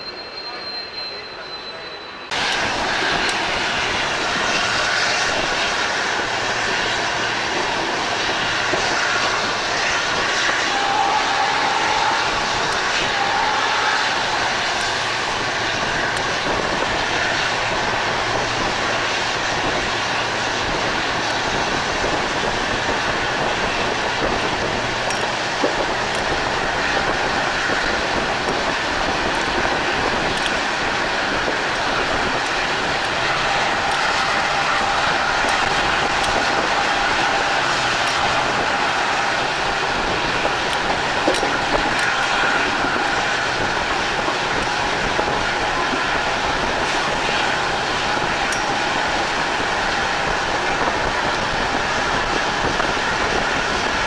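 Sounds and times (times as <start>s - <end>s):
train running on rails: 0.0s - 54.0s.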